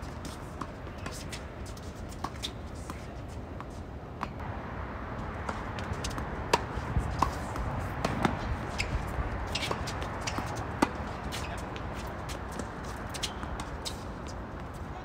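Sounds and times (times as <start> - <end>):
tennis ball bouncing: 0.0 - 4.5, 5.1 - 14.8
racquet striking tennis ball: 5.3 - 11.9.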